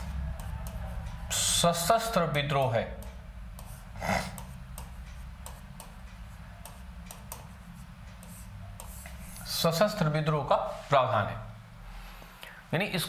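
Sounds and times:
chalk tapping on blackboard: 0:00.0 - 0:01.2, 0:01.8 - 0:10.0
chalk scrape: 0:07.5 - 0:09.8.

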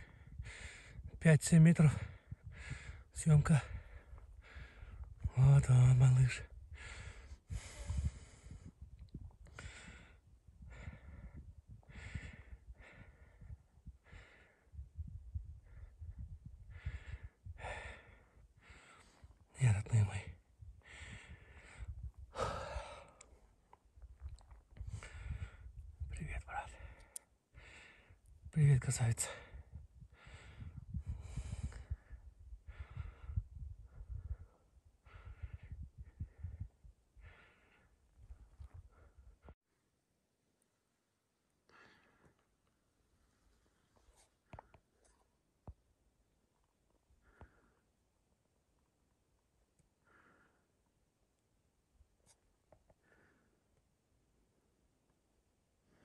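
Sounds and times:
breathing close to microphone: 0:00.0 - 0:01.1, 0:02.0 - 0:03.1, 0:03.7 - 0:05.1, 0:06.7 - 0:08.8, 0:09.5 - 0:19.4, 0:20.8 - 0:23.2, 0:24.8 - 0:25.8, 0:29.3 - 0:39.5.

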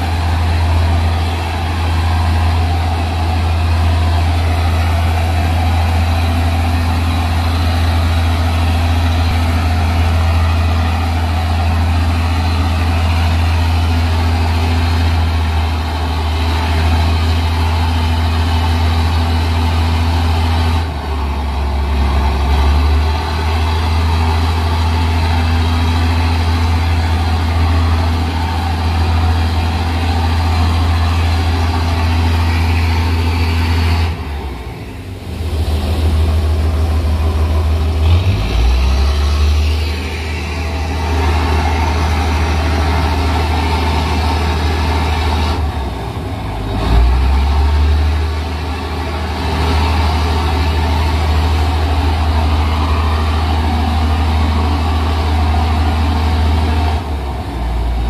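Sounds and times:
ship engine drone: 0:00.0 - 0:58.0.

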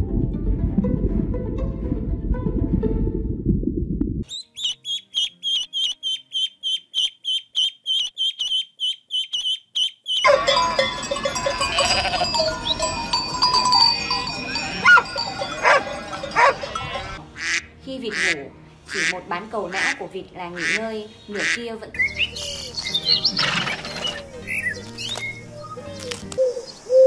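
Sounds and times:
chorus of farm animal calls: 0:04.6 - 0:20.0, 0:22.4 - 0:24.7
high-pitched animal call: 0:11.6 - 0:12.9.

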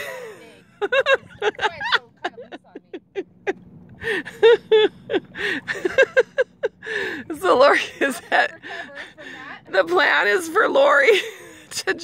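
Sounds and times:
woman talking: 0:00.0 - 0:03.2, 0:07.2 - 0:12.0.

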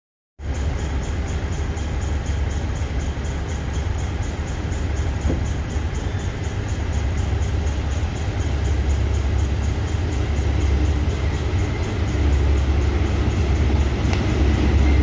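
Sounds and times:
locomotive engine rumble: 0:00.4 - 0:15.0.

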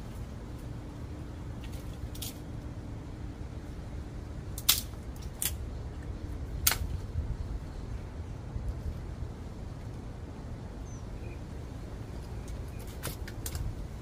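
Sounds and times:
dry wood cracking in fire: 0:04.5 - 0:07.1, 0:12.8 - 0:13.7.

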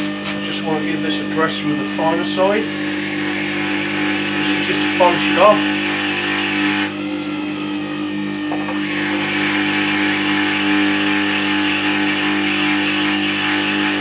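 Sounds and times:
motor hum: 0:00.0 - 0:14.0
stone scraping grindstone: 0:08.7 - 0:14.0.

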